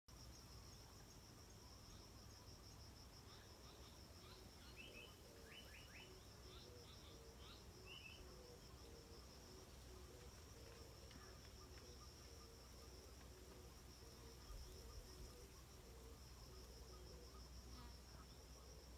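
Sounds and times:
insect trill: 0.2 - 18.9.

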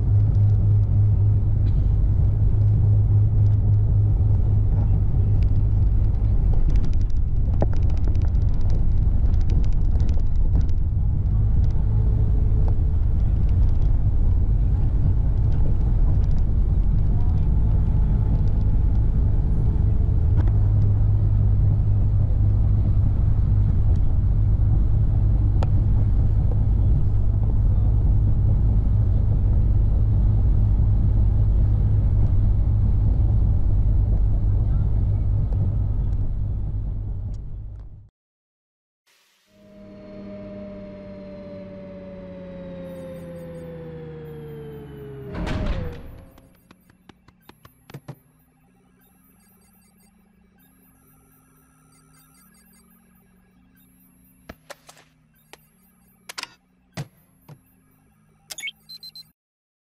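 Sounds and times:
vehicle engine and road rumble: 0.0 - 38.1, 39.6 - 49.0.

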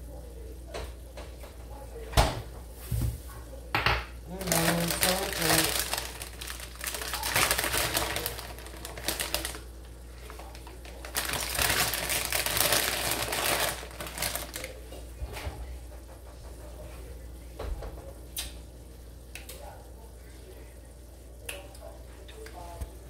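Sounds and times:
plastic bag crinkling: 4.3 - 14.8.

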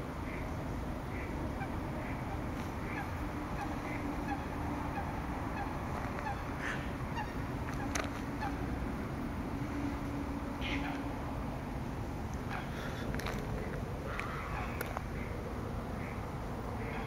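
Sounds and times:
low background rumble: 0.0 - 17.0.

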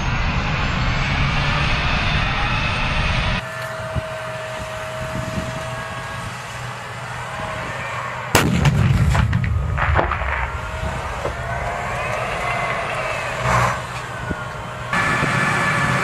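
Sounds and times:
engine hum with steady whine: 0.0 - 16.0
tank engine running: 0.0 - 16.0
tank gun firing: 8.4 - 11.4.

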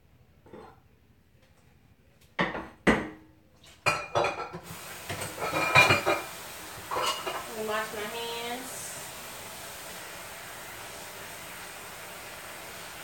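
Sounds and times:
dishes clinking: 2.4 - 7.5
colander and bowl clattering in sink: 2.4 - 8.0
tap running: 4.6 - 13.0.

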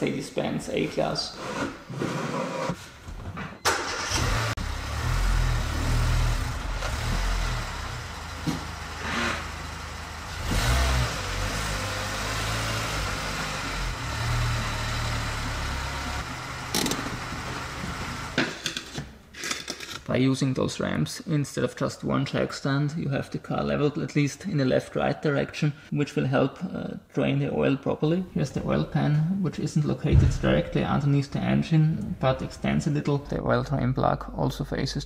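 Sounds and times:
car engine revving: 3.7 - 18.4.

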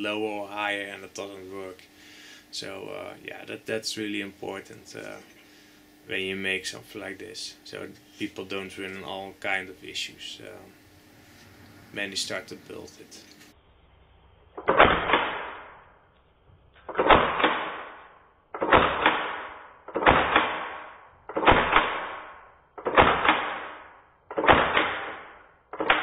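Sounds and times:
airsoft gun shots: 14.6 - 15.8, 16.9 - 26.0.

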